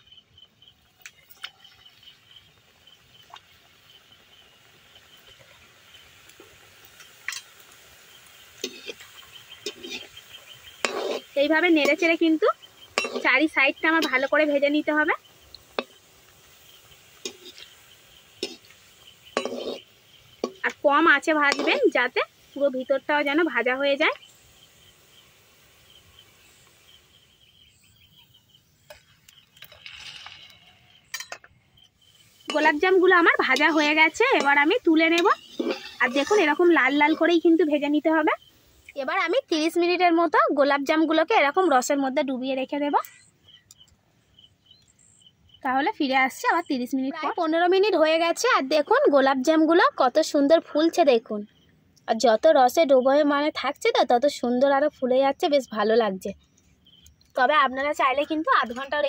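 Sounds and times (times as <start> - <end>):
dough frying in oil: 0.0 - 43.6
soft chirping: 6.9 - 39.4, 42.6 - 45.6, 55.6 - 59.0
spoon scraping metal wok: 8.5 - 23.5, 28.8 - 31.5, 32.1 - 37.8.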